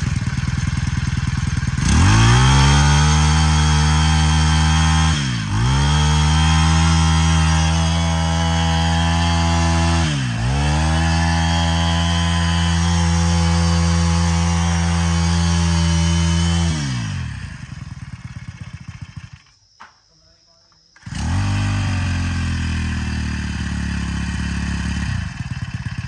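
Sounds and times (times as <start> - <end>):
brushcutter engine revving: 0.0 - 19.5, 21.0 - 26.0.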